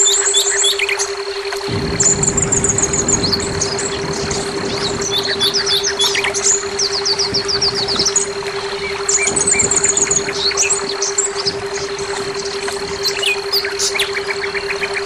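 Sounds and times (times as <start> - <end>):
bird singing chirps and trills: 0.0 - 15.0
steady low hum: 0.0 - 15.0
low rumble: 1.7 - 13.4.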